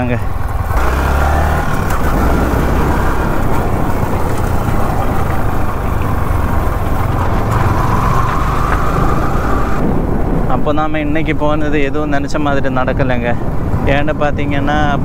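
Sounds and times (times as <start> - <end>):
motorcycle engine running: 0.0 - 9.8
wind rush on microphone: 0.0 - 15.0.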